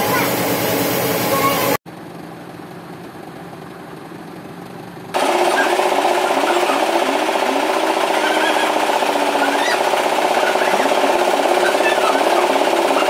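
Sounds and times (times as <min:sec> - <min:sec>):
sawmill machinery rattling: 0:00.0 - 0:01.8, 0:05.1 - 0:13.0.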